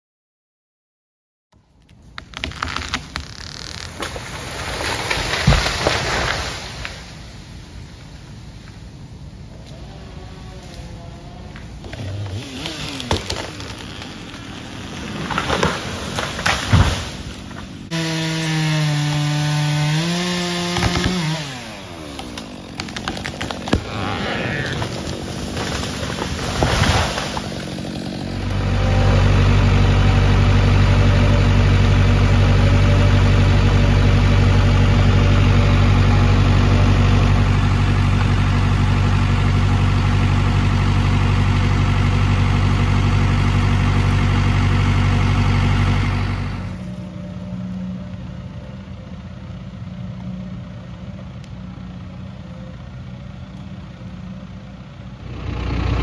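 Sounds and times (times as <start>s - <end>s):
skidder engine dragging logs: 1.7s - 56.0s
logging machine diesel engine: 1.9s - 56.0s
tree crashing down: 2.2s - 7.3s, 11.6s - 46.8s.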